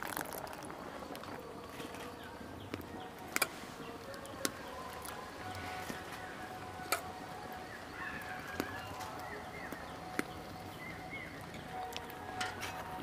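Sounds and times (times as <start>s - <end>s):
faint bird calls: 5.5s - 11.9s.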